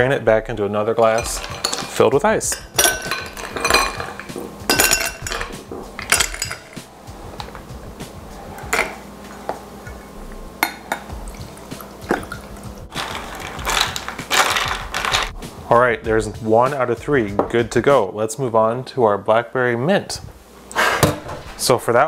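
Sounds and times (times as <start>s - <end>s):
ice cubes clinking into glass: 1.0s - 6.8s, 12.1s - 15.3s
drink pouring over ice: 10.9s - 15.3s.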